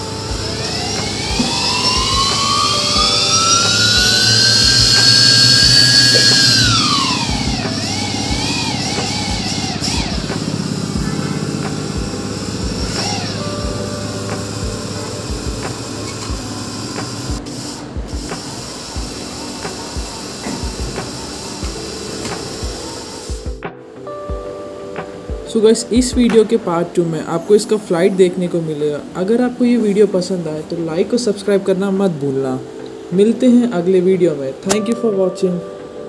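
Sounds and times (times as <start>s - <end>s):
quadcopter motors whining: 0.0s - 23.6s
background music with beat: 0.0s - 26.8s.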